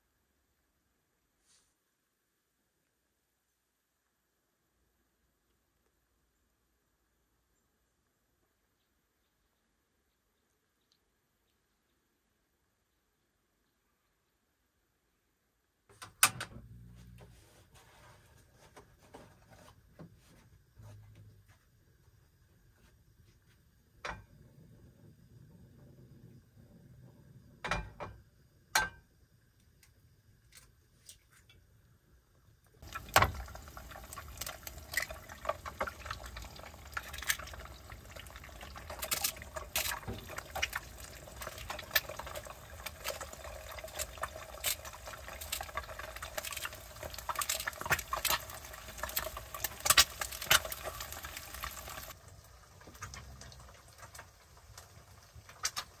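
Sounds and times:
eggs sizzling in oil: 0:32.8 - 0:56.0.

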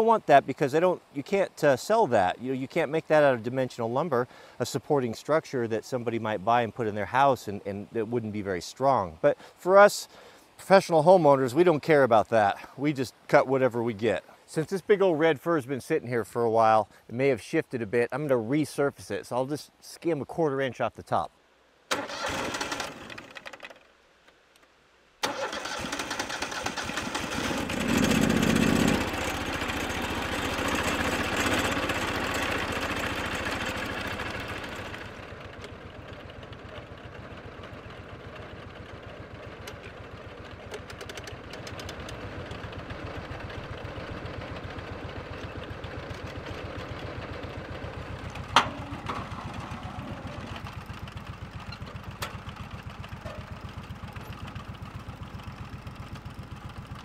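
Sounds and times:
sawmill engine running: 0:25.2 - 0:57.0.

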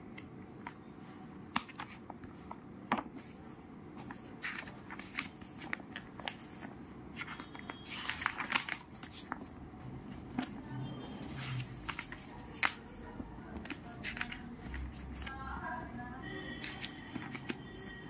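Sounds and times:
paper pages rustling: 0:00.2 - 0:18.0
plastic cover sheet crinkling: 0:04.2 - 0:09.5.

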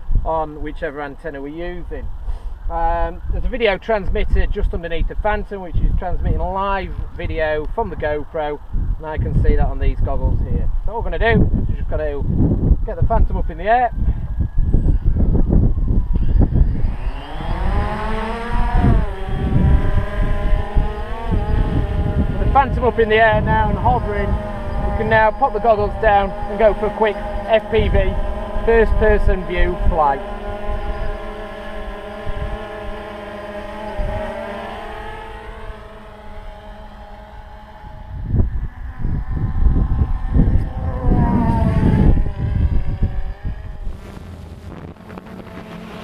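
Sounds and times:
quadcopter motors buzzing: 0:00.0 - 0:46.0
wind buffeting microphone: 0:00.0 - 0:46.0
drone propellers whining: 0:10.7 - 0:46.0.

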